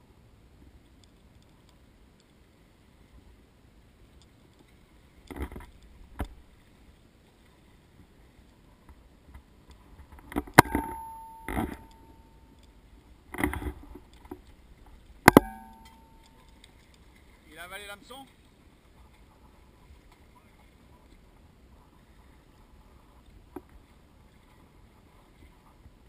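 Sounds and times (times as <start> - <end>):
metallic ring: 10.6 - 12.6, 15.3 - 16.6.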